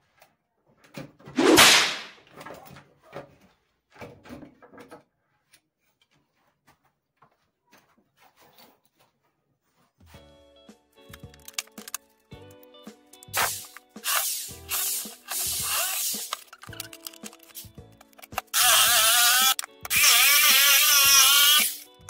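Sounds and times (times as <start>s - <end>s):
loud scraping swish: 1.4s - 2.2s.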